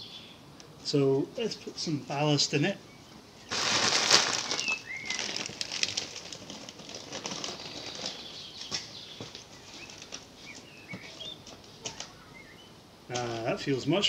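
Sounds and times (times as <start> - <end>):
bird chirping: 2.0 - 5.5, 7.6 - 12.8
bag rustling and crinkling: 3.5 - 12.0.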